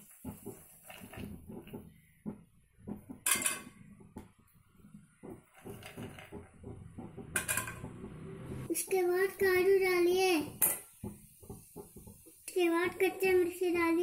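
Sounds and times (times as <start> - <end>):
cookware clinking: 3.2 - 3.8, 7.2 - 8.0.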